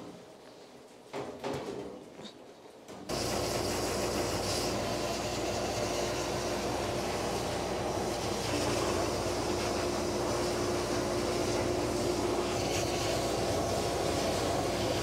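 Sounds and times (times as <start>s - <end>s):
dryer blowing air: 3.1s - 15.0s.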